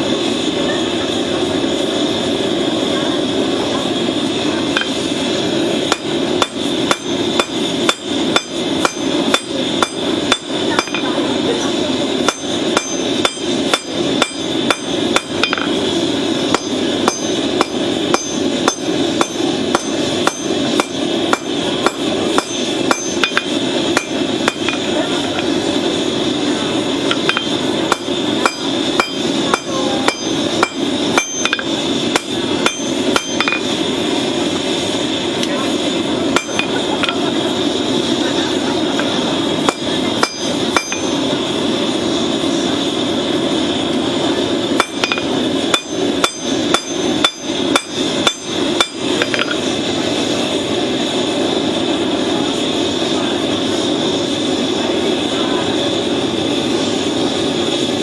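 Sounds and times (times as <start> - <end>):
steady rushing noise: 0.0 - 58.0
hammer striking hot steel on anvil: 4.7 - 25.6, 27.0 - 33.8, 36.3 - 37.3, 38.9 - 41.4, 44.7 - 49.8.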